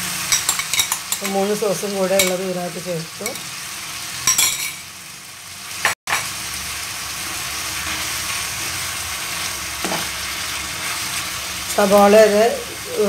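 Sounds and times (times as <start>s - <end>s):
vegetables sizzling in oil: 0.0s - 13.0s
spatula stirring in a pan: 7.8s - 11.8s.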